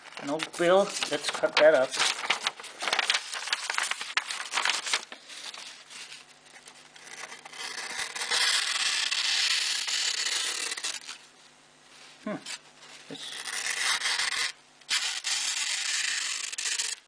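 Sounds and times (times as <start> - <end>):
paper crackling: 0.0 - 11.2, 12.5 - 17.0
knife slicing through paper: 13.2 - 17.0.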